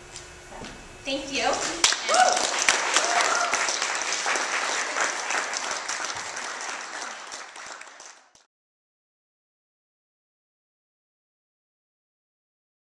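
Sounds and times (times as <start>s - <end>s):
audience applauding: 1.8s - 8.5s.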